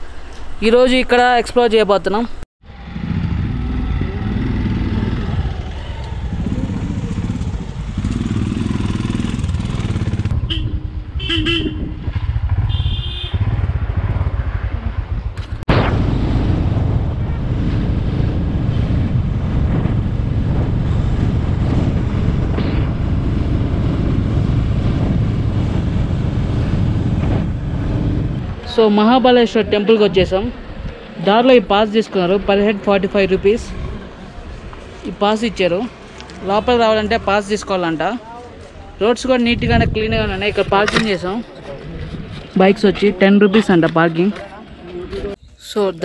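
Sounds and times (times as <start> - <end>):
motorcycles riding: 2.6 - 46.0
wind noise on microphone: 3.0 - 31.1, 39.0 - 43.6.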